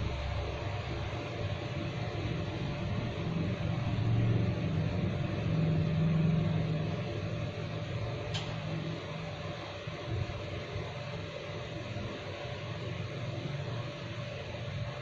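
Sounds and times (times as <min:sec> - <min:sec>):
low mechanical hum with hiss: 0:00.0 - 0:15.0
sharp click: 0:08.3 - 0:08.6.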